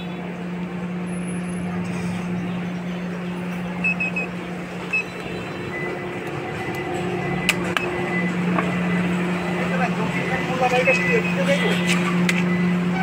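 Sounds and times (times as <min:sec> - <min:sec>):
engine hum: 0:00.0 - 0:13.0
quick high beeps: 0:03.8 - 0:04.3, 0:04.9 - 0:08.4.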